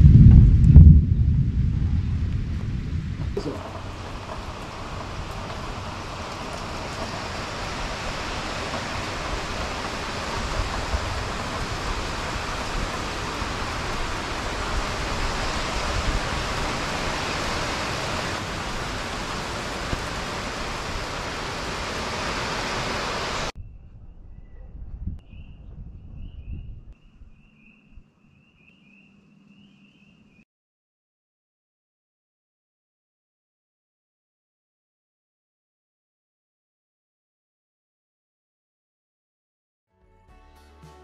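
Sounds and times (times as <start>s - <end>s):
heavy rain pouring: 0.4s - 23.5s.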